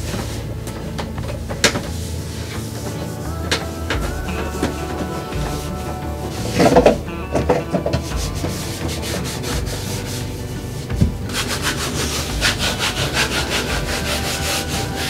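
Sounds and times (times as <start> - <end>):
cleaning sheet wiping hard surfaces: 8.2 - 15.0.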